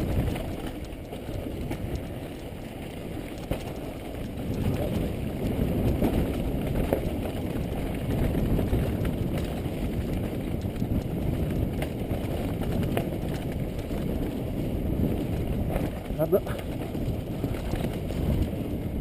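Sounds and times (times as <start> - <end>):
clicks and rattles: 0.0 - 5.2
bike tyres rumbling on dirt trail: 0.0 - 19.0.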